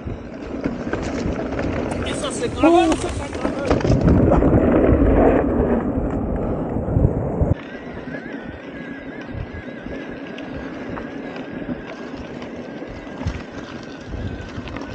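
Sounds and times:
bike clicks and rattles: 0.0s - 4.8s, 8.4s - 14.9s
electric bike motor whine: 5.8s - 14.9s.

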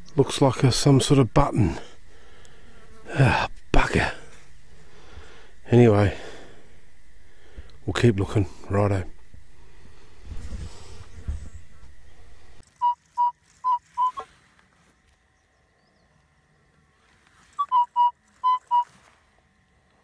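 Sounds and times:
low handling rumble: 3.5s - 12.6s
metal detector beeps: 12.6s - 14.3s, 17.6s - 19.0s.

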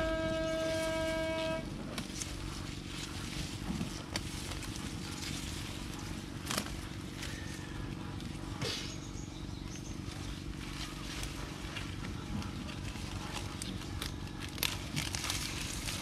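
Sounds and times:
leaves rustling: 0.0s - 8.6s, 9.7s - 16.0s
plant stems snapping: 6.4s - 7.4s, 13.2s - 16.0s.

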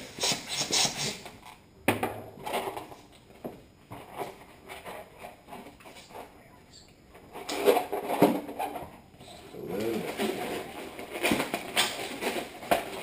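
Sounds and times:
balloons rubbing and rustling: 0.0s - 1.2s.

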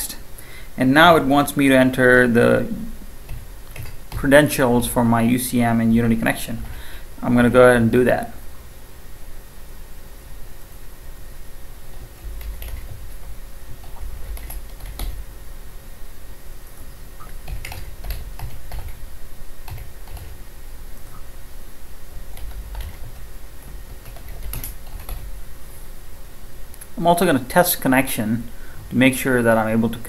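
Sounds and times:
typing on computer keyboard: 3.3s - 4.2s, 12.0s - 13.1s, 13.8s - 15.2s, 17.2s - 19.0s, 19.6s - 20.4s, 22.3s - 25.3s.

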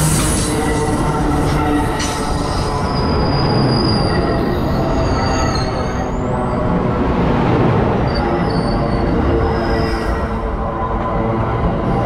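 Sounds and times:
train wheels rumbling on rails: 0.0s - 12.0s
high-pitched wheel squeal: 0.1s - 6.6s.

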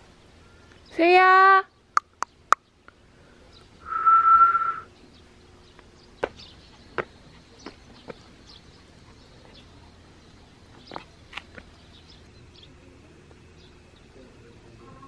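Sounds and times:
person whistling one note: 3.8s - 4.9s.

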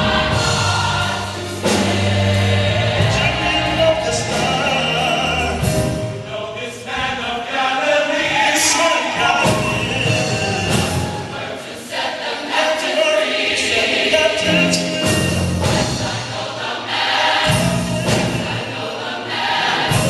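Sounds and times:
gospel choir singing: 0.0s - 20.0s.

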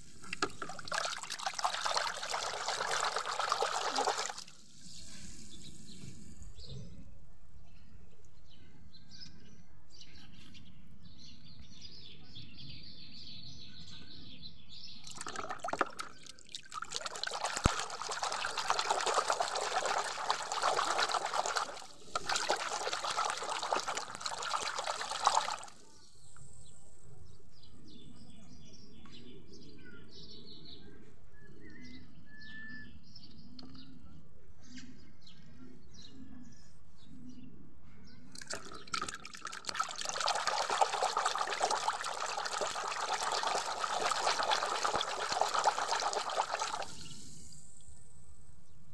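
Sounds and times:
water splashing in a basin: 0.0s - 6.0s, 15.0s - 26.0s, 38.4s - 47.9s.

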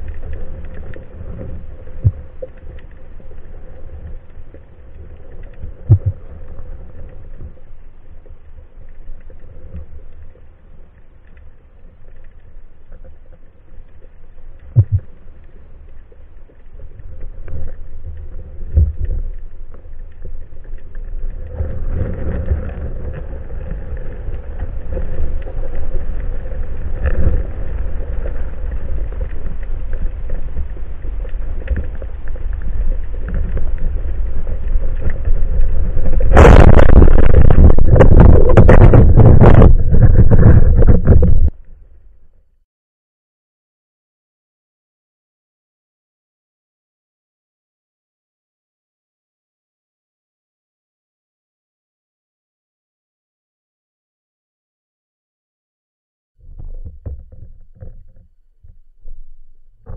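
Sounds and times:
low underwater rumble: 0.0s - 42.6s, 56.4s - 59.9s.

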